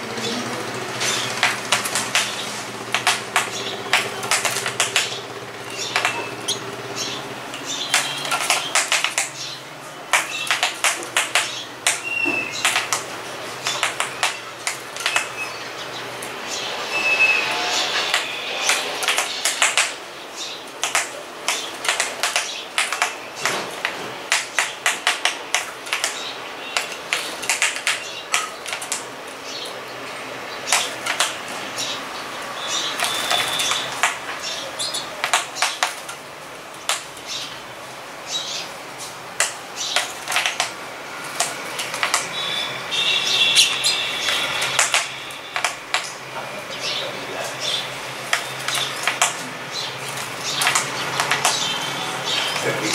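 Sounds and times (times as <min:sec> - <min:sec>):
sharp beak taps: 0:01.3 - 0:06.7, 0:07.8 - 0:09.4, 0:10.1 - 0:15.4, 0:18.1 - 0:20.0, 0:20.8 - 0:29.1, 0:30.7 - 0:31.4, 0:32.9 - 0:34.4, 0:43.6 - 0:46.2, 0:50.5 - 0:51.7.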